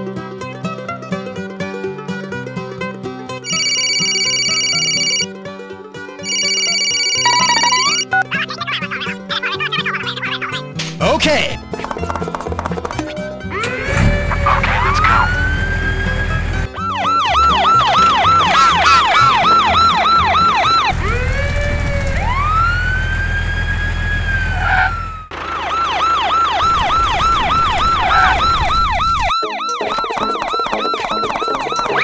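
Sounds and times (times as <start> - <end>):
wailing and yelping siren: 3.5 - 5.3, 6.3 - 10.5, 13.5 - 32.0.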